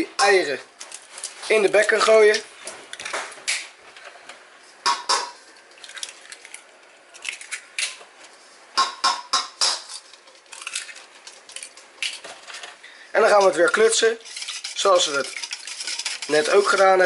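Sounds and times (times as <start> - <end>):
eggs cracking on metal bowl: 8.8 - 12.6.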